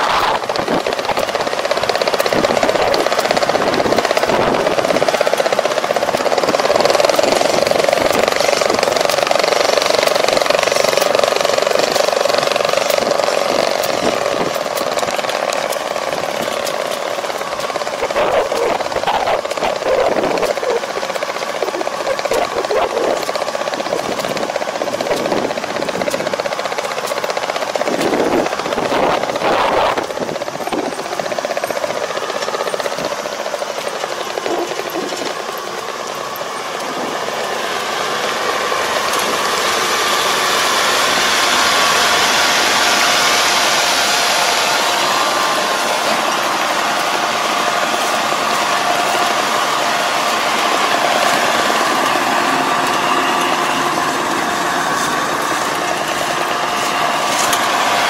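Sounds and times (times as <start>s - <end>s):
combine harvester droning: 0.0s - 58.0s.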